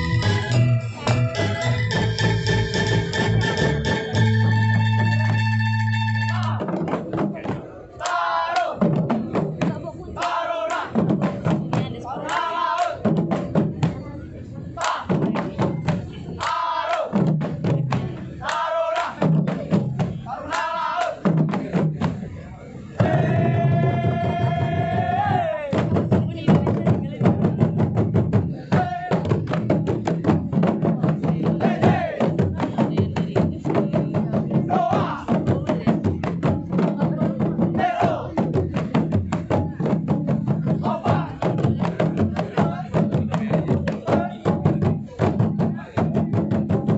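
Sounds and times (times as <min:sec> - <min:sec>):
drum ensemble playing: 0:00.0 - 0:07.7, 0:08.7 - 0:10.1, 0:10.7 - 0:14.0, 0:17.1 - 0:22.3, 0:23.0 - 0:46.9
group shout: 0:08.0 - 0:08.8, 0:31.7 - 0:32.2.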